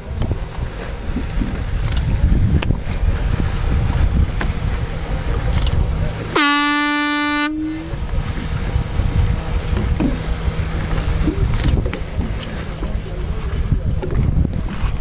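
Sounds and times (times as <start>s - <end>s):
wind buffeting microphone: 0.0s - 6.4s, 7.1s - 15.0s
boat engine rumble: 0.0s - 15.0s
horn blast: 6.4s - 8.0s.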